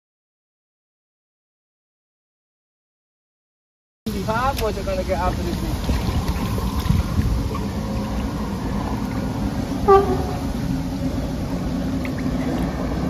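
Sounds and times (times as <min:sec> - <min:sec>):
wind noise: 0:05.0 - 0:13.0
low rumble: 0:05.4 - 0:13.0
short horn toot: 0:09.8 - 0:10.6.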